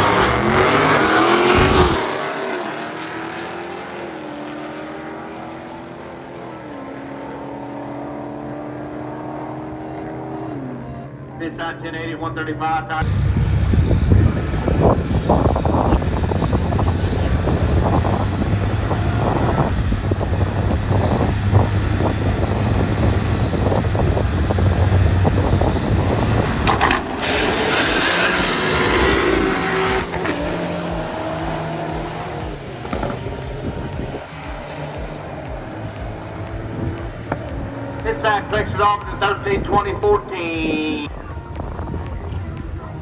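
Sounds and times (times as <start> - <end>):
race car engine running rough: 13.0 - 40.7.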